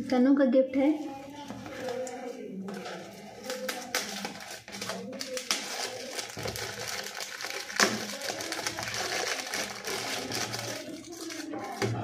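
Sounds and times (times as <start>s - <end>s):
wrapping paper rustling and tearing: 2.7s - 12.0s.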